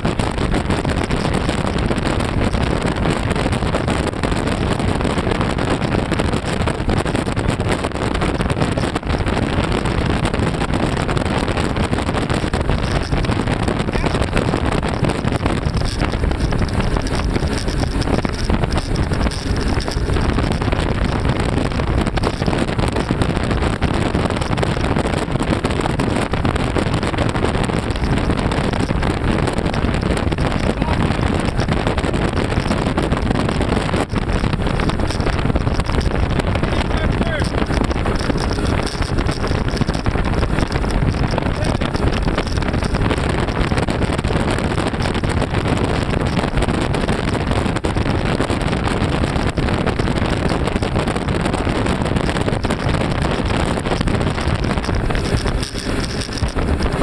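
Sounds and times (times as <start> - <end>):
rushing water: 0.0 - 3.7
outboard motors running: 0.0 - 57.0
wind buffeting microphone: 0.0 - 57.0.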